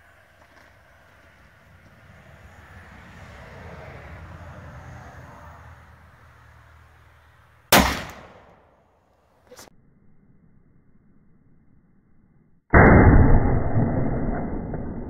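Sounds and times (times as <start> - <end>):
pistol shot: 7.7 - 8.8
low rumble: 9.7 - 15.0.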